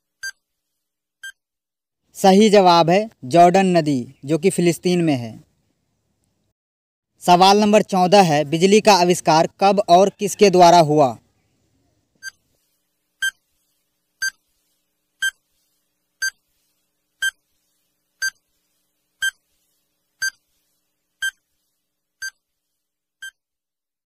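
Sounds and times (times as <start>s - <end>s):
electronic countdown beeps: 20.2s - 20.4s.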